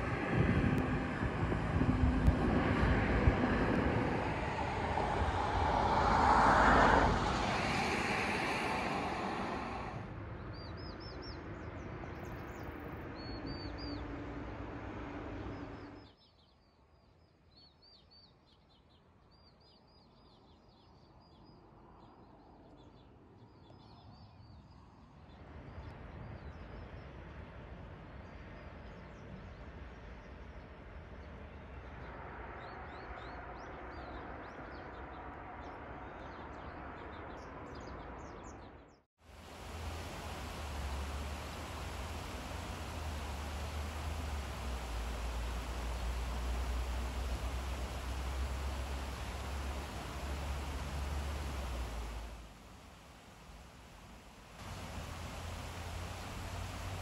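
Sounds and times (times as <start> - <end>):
road traffic passing: 0.0 - 10.2, 39.3 - 57.0
faint steady hiss: 39.2 - 57.0
small birds chirping: 39.4 - 57.0.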